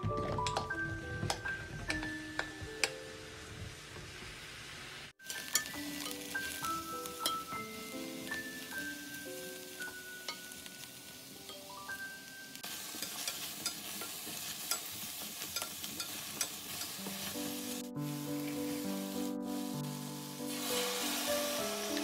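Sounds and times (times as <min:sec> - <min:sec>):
soft music with plucked notes: 0:00.0 - 0:03.3, 0:05.3 - 0:12.6, 0:16.8 - 0:22.0
eggplant sizzling in hot oil: 0:03.3 - 0:22.0.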